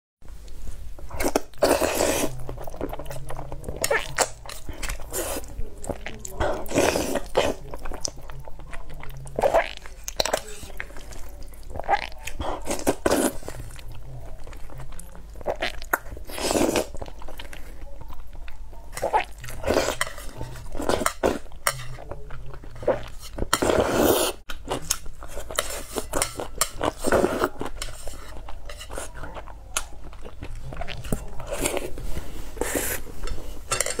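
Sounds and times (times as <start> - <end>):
chewing: 0.4 - 34.0
person slurping noodles: 1.2 - 3.0, 6.5 - 7.6, 11.8 - 13.8, 15.5 - 17.0, 22.9 - 24.4, 31.4 - 33.7
chopsticks clinking on metal plate: 33.3 - 34.0.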